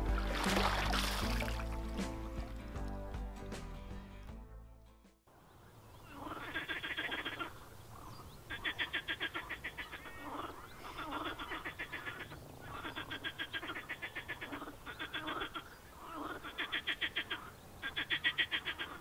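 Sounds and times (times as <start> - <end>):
frogs croaking: 5.4 - 19.0.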